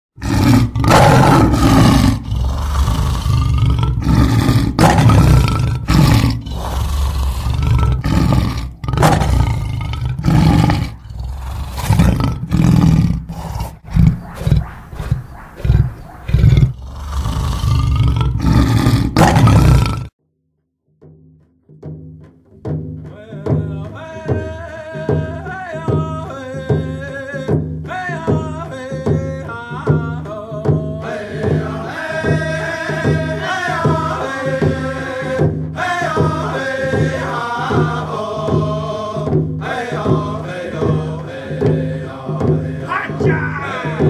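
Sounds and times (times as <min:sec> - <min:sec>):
big cat grunting calls: 0:00.2 - 0:20.1
big cat roaring: 0:00.2 - 0:20.1.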